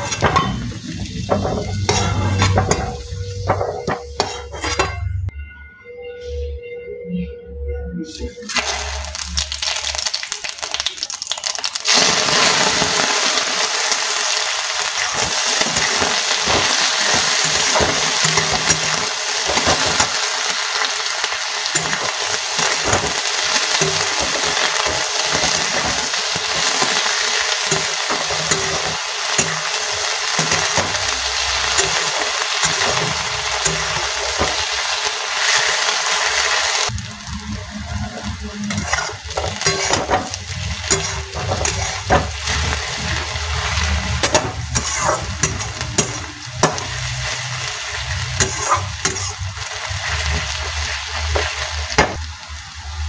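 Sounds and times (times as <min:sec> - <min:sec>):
onions sizzling in hot oil: 0:00.0 - 0:04.8, 0:08.5 - 0:53.0
spatula stirring in pan: 0:38.7 - 0:47.6, 0:48.2 - 0:50.6.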